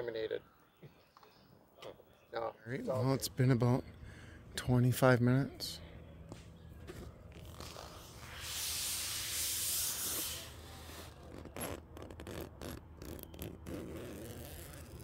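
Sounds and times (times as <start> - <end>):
loud high-pitched hiss: 7.9 - 11.2.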